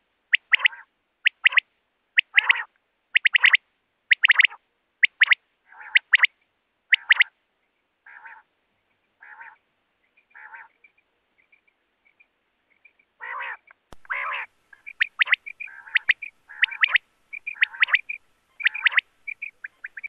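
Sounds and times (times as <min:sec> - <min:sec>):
quail calling: 0:00.3 - 0:01.6, 0:02.2 - 0:07.3, 0:08.1 - 0:08.5, 0:09.2 - 0:09.6, 0:10.3 - 0:10.9, 0:13.2 - 0:20.0.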